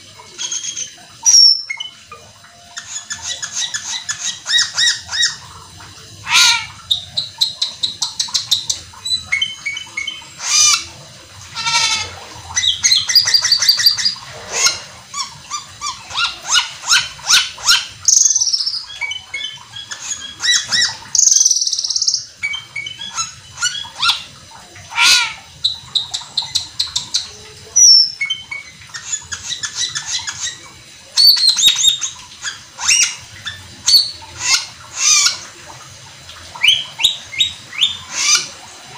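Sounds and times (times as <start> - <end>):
starling singing: 11.5 - 24.3, 24.9 - 30.6, 31.2 - 35.4, 36.6 - 38.6.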